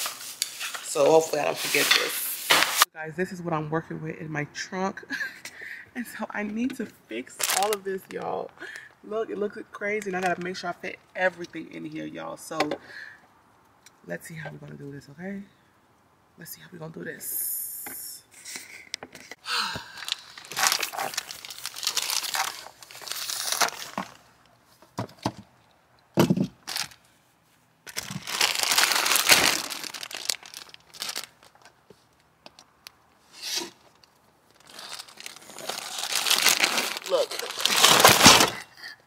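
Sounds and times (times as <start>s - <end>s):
bags rustling: 20.0s - 24.3s, 27.9s - 31.6s, 34.5s - 38.6s.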